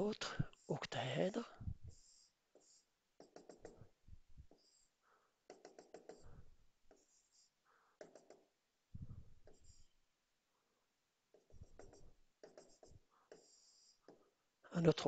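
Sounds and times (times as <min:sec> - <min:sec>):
stylus tapping and scratching: 0:01.9 - 0:10.0, 0:11.3 - 0:14.3.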